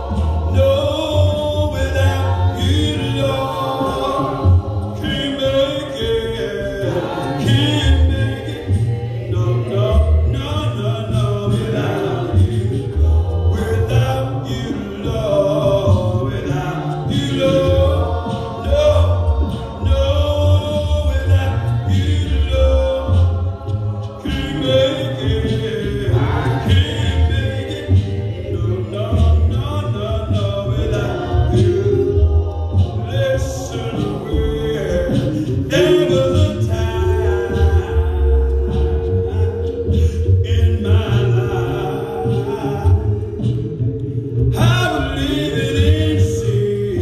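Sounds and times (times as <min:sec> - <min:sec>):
voices singing a hymn: 0:00.0 - 0:47.0.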